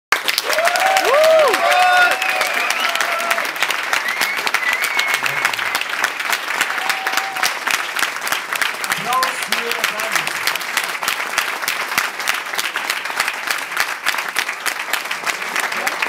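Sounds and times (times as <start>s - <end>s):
audience applauding: 0.1s - 16.0s
audience whooping and cheering: 0.3s - 7.9s.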